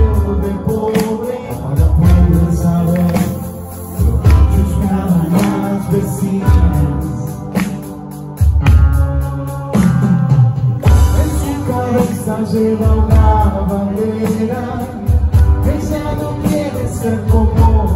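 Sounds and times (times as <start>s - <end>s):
bass notes: 0.0s - 17.9s
live band playing: 0.0s - 17.9s.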